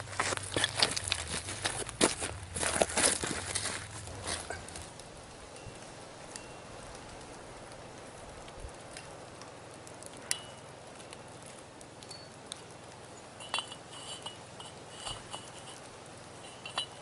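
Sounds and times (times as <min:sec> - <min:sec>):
faint outdoor background: 0:00.0 - 0:17.0
metal pipe fitting clinking: 0:13.4 - 0:17.0.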